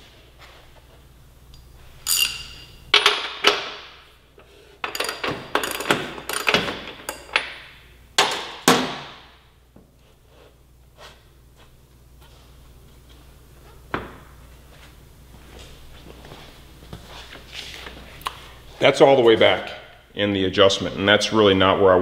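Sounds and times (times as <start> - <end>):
tools clanking on metal axle: 4.8 - 7.6.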